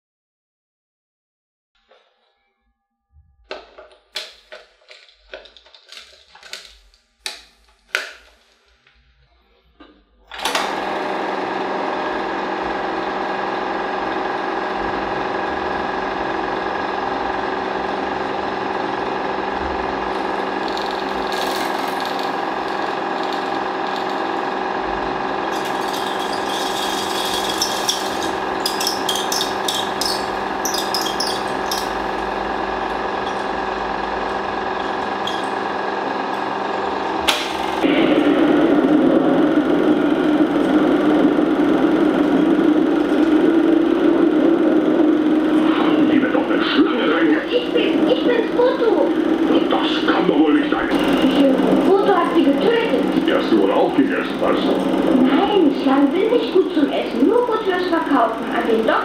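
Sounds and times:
film projector whirring: 0:03.5 - 0:08.8, 0:10.3 - 0:59.0
rapid high clicking: 0:20.1 - 0:36.1
film reel clicks and knocks: 0:25.5 - 0:32.4.

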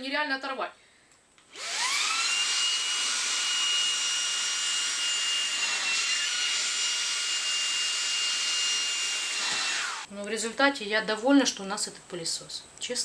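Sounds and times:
handheld vacuum motor whine: 0:01.5 - 0:10.1.

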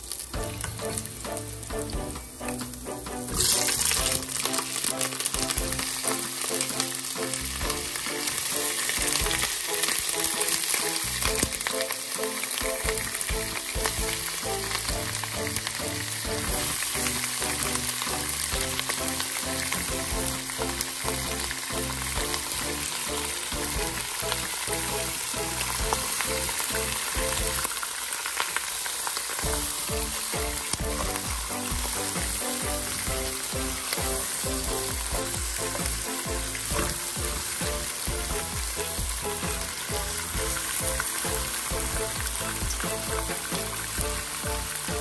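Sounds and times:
meat sizzling in hot oil: 0:00.0 - 0:45.0.

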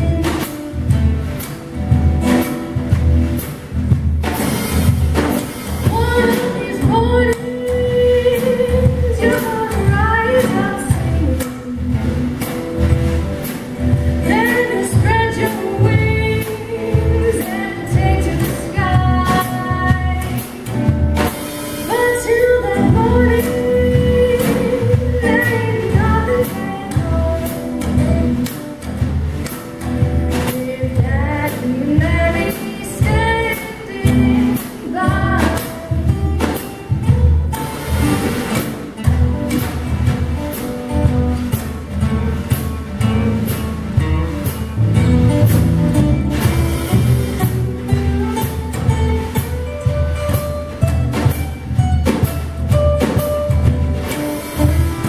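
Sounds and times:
woman singing: 0:00.0 - 0:01.0, 0:05.7 - 0:12.2, 0:14.2 - 0:29.0, 0:29.6 - 0:37.8, 0:46.4 - 0:51.4
double bass plucking: 0:00.0 - 0:55.0
strummed acoustic guitar: 0:00.0 - 0:55.0.

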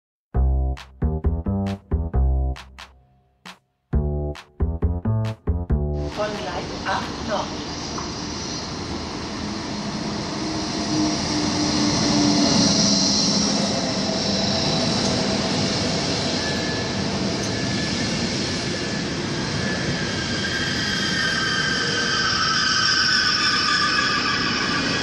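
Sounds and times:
high-pitched wheel squeal: 0:19.7 - 0:25.0.

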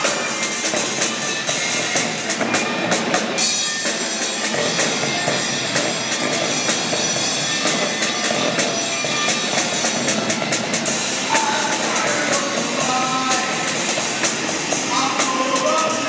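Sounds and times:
drum kit beat: 0:00.0 - 0:16.0
electric guitars: 0:00.0 - 0:16.0.

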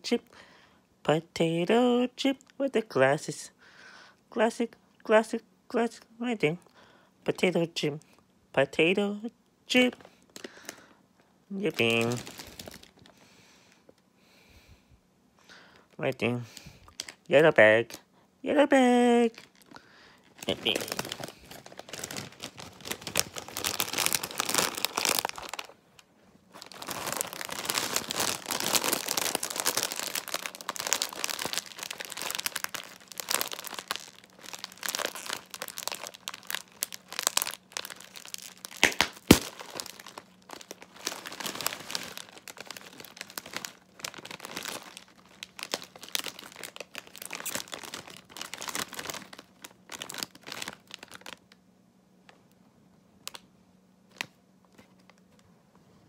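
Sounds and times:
plastic chip bag crinkling: 0:09.7 - 0:13.3, 0:15.7 - 0:51.6, 0:53.2 - 0:53.5, 0:54.1 - 0:55.4
bag popping: 0:26.6 - 0:44.9.

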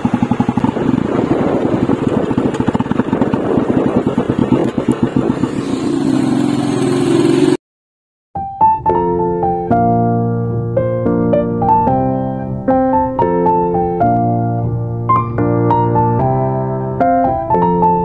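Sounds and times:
motorcycle engine accelerating: 0:00.0 - 0:07.6
piano music: 0:08.4 - 0:18.0.

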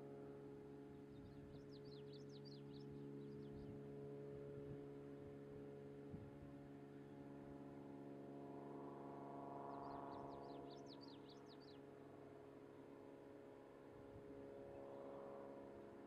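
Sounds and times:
songbird singing: 0:00.9 - 0:03.8, 0:09.7 - 0:11.9.

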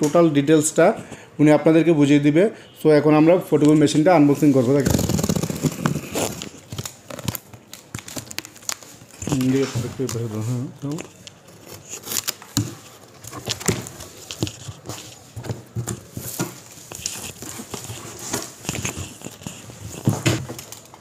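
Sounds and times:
cardboard flaps scraping and rustling: 0:04.4 - 0:06.9, 0:11.5 - 0:21.0
box cutter cutting packing tape: 0:11.5 - 0:12.7.

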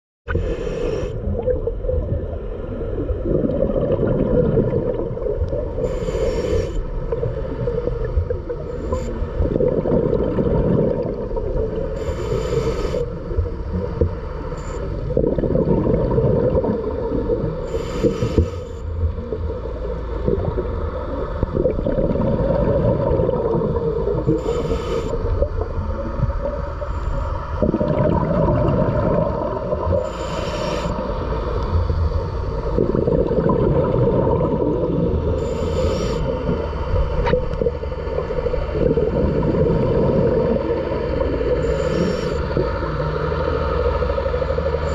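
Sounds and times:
regulator inhalation hiss: 0:00.3 - 0:01.2, 0:05.8 - 0:06.9, 0:11.9 - 0:13.3, 0:17.6 - 0:18.9, 0:24.3 - 0:25.4, 0:29.9 - 0:31.6, 0:35.4 - 0:36.9, 0:41.6 - 0:42.6
exhaled air bubbling: 0:00.3 - 0:44.9.

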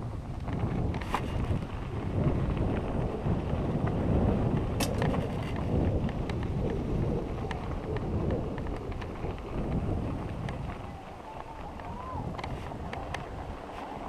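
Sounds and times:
wind rumbling on microphone: 0:00.0 - 0:14.0
sharp clicks from bike: 0:00.3 - 0:14.0
tyres crunching on gravel: 0:07.5 - 0:14.0.

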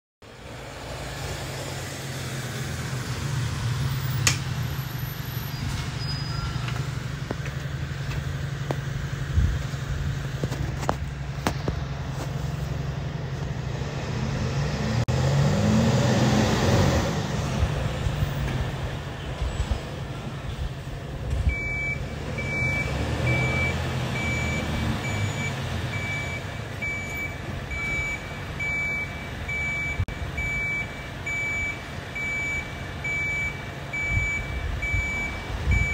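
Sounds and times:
diesel truck engine running: 0:00.2 - 0:35.9
reversing alarm beeping: 0:21.5 - 0:35.9.

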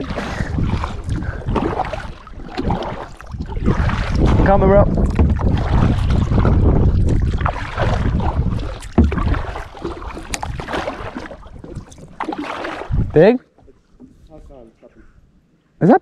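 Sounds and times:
wind buffeting microphone: 0:00.0 - 0:13.3
paddle strokes splashing water: 0:00.0 - 0:14.6
sharp knocks: 0:08.9 - 0:09.5.

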